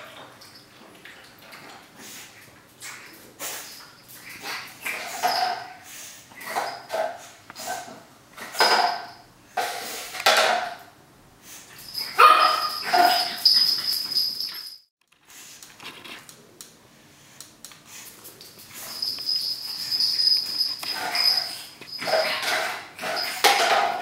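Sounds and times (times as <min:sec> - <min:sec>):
puppy barking and yapping: 0:12.0 - 0:14.1.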